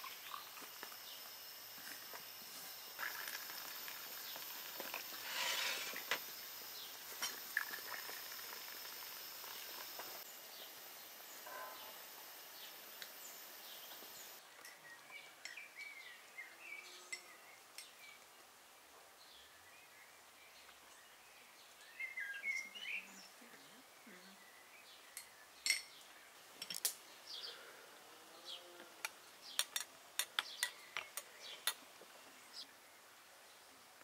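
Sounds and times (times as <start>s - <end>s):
high-pitched insect drone: 0.0s - 14.4s
birds chirping: 2.0s - 18.2s, 19.4s - 26.4s, 27.0s - 27.8s, 28.4s - 32.7s.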